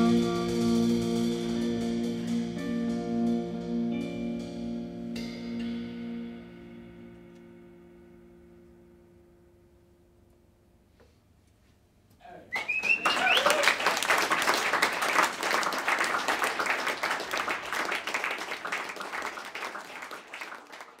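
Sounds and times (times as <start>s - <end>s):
jazz band ringing note: 0.0s - 9.5s
person whooping: 12.2s - 14.0s
audience applause: 12.5s - 21.0s.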